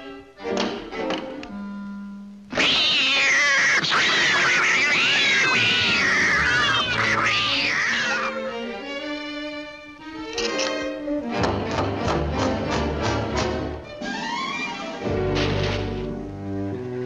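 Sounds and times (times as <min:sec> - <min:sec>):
cartoon cat screeching: 0:02.5 - 0:08.5.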